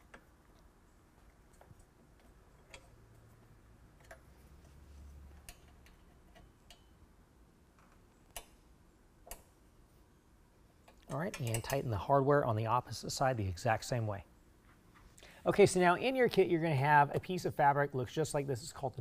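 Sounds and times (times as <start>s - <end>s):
metal wrench clicks: 10.9s - 11.9s.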